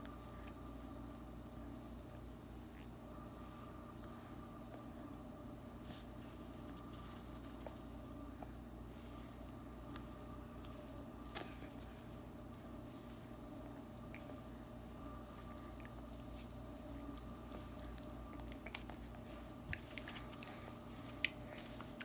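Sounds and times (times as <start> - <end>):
steady hum: 0.0 - 22.0
baby chewing wetly: 9.3 - 22.0.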